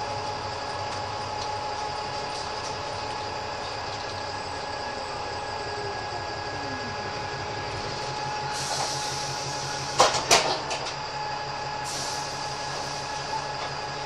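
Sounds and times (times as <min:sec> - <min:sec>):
bus engine hum and whine: 0:00.0 - 0:14.0
air hiss: 0:08.4 - 0:10.1, 0:11.8 - 0:13.4.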